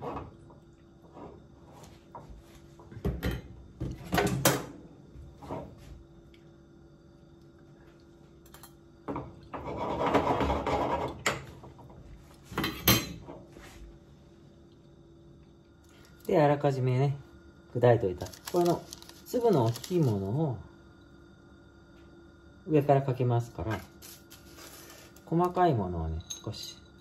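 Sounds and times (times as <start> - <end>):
spatula scraping pan: 9.6 - 11.2.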